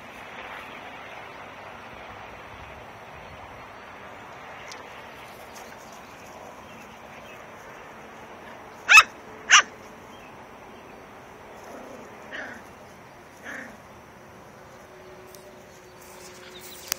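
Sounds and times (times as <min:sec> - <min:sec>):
small dog barking: 0:08.8 - 0:09.8, 0:11.7 - 0:12.7, 0:13.4 - 0:13.8.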